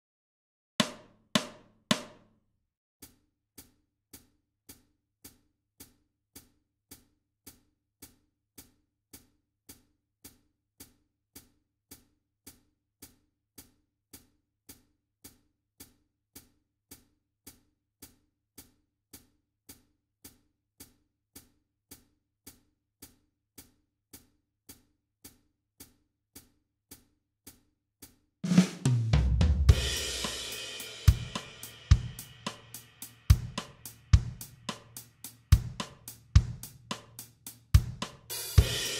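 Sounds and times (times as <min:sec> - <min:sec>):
bass drum: 0:28.4 - 0:38.9
loud drum hits: 0:28.5 - 0:32.2
cymbal crash: 0:29.7 - 0:32.4.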